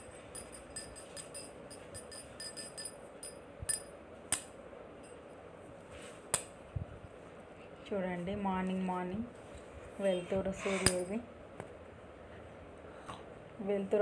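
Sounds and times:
light ringing clinks: 0:00.0 - 0:04.0.

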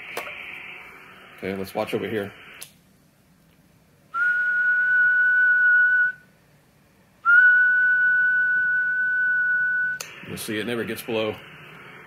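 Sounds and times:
person whistling high note: 0:04.2 - 0:06.2, 0:07.3 - 0:10.0.

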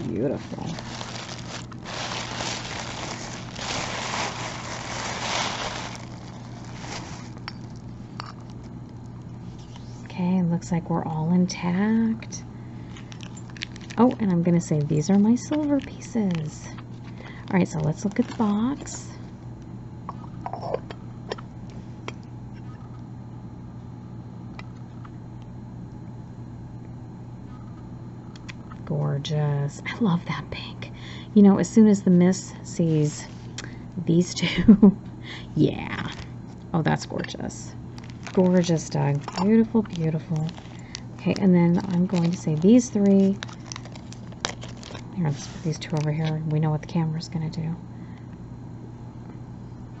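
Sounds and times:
tissue paper rustling: 0:00.0 - 0:07.4, 0:37.9 - 0:46.0
steady low hum: 0:00.0 - 0:50.0.

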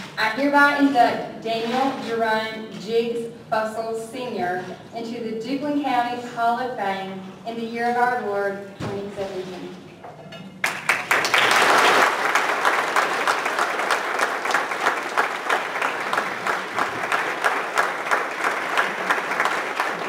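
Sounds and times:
audience applauding: 0:10.6 - 0:20.0.

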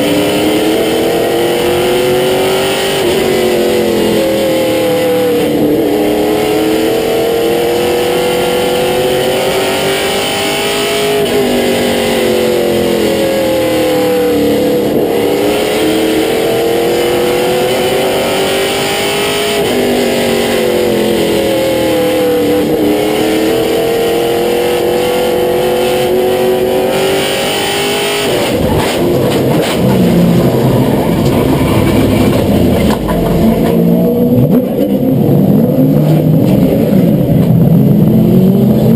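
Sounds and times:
race car engine revving: 0:00.0 - 0:38.9
low rough engine sound: 0:28.6 - 0:34.8.

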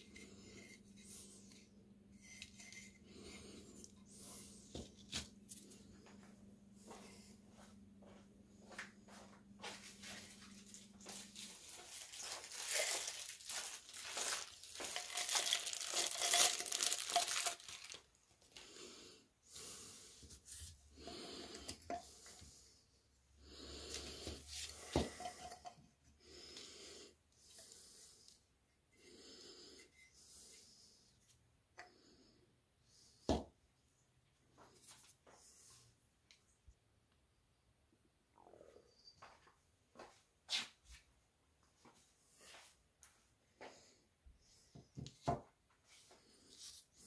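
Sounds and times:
rustling and scraping on newspaper: 0:10.0 - 0:18.1.

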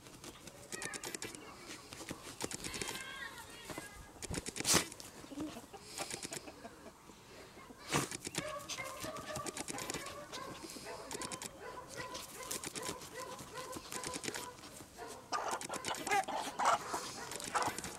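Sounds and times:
dog digging in soil: 0:04.3 - 0:05.2, 0:07.8 - 0:17.9
dog snuffling: 0:07.8 - 0:17.9.

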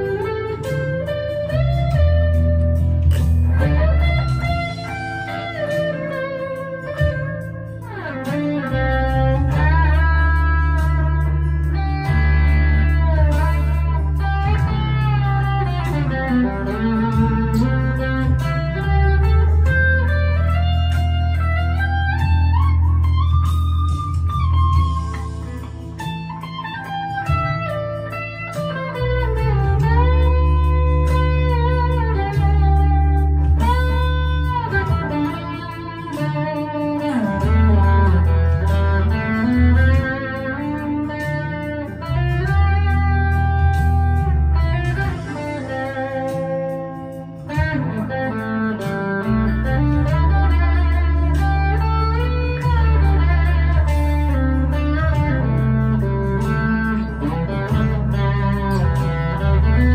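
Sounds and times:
low bass notes: 0:00.0 - 0:59.9
overdriven electric guitar lead: 0:00.0 - 0:59.9.

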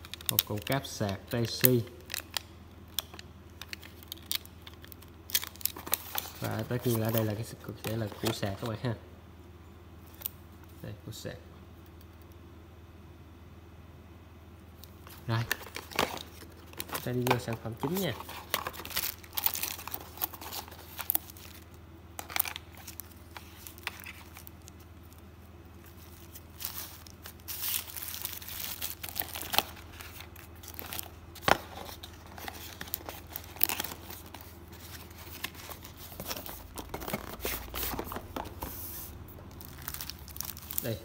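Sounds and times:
cardboard and paper crinkling: 0:03.6 - 0:08.8, 0:15.0 - 0:21.6, 0:22.2 - 0:25.2, 0:25.8 - 0:41.0.

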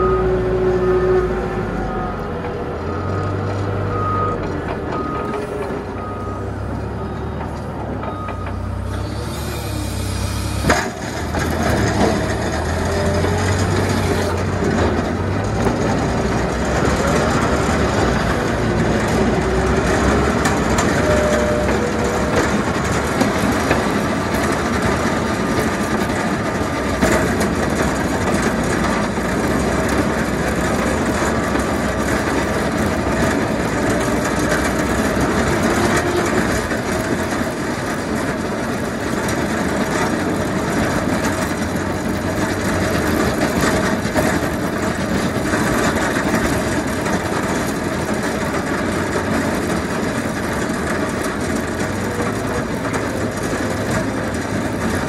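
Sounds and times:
diesel engine running under load: 0:00.0 - 0:55.0
plow blade scraping snow: 0:08.7 - 0:55.0.

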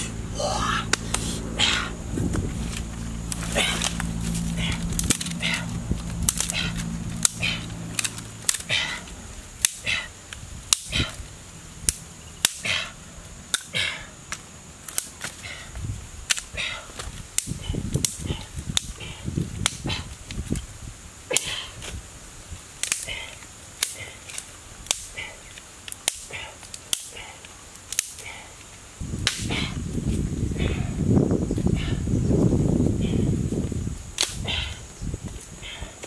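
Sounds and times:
twigs and leaf litter crackling: 0:00.0 - 0:36.0
sticks snapping: 0:00.8 - 0:11.2, 0:11.8 - 0:15.6, 0:16.2 - 0:20.7, 0:21.3 - 0:22.0, 0:22.8 - 0:29.7, 0:34.2 - 0:34.7.

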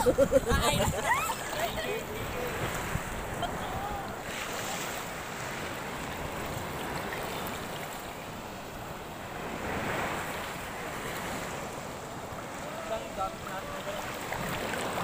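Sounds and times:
wind buffeting microphone: 0:00.0 - 0:04.4
sea water washing and surging: 0:00.0 - 0:15.0.

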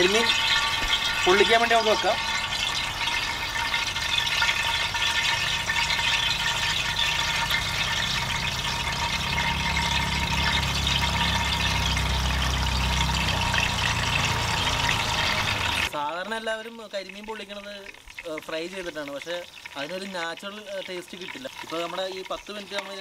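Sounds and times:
low rumble: 0:00.0 - 0:15.9
fish sizzling in hot oil: 0:00.0 - 0:23.0.

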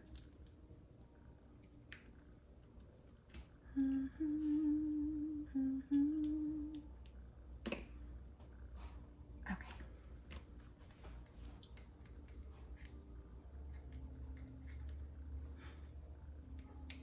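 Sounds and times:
woman humming a tune: 0:03.7 - 0:06.9.

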